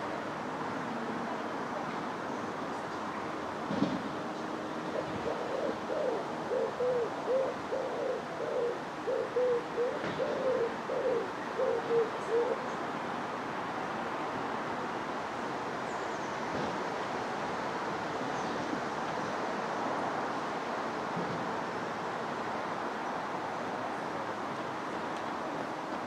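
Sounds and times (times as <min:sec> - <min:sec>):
pigeon cooing: 0:05.0 - 0:12.7.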